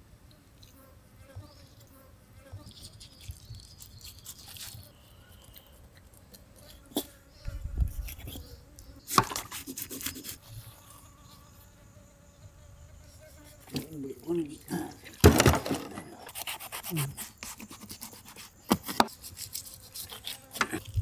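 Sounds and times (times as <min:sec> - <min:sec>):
fly buzzing: 0:00.6 - 0:21.0
fish skin ripping: 0:02.7 - 0:06.8.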